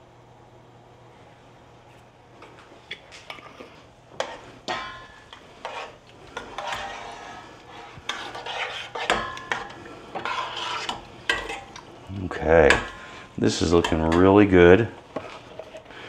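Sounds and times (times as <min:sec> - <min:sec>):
spoon scraping and clinking on pot: 0:04.2 - 0:11.8
metal spoon stirring in a pot: 0:04.2 - 0:16.0.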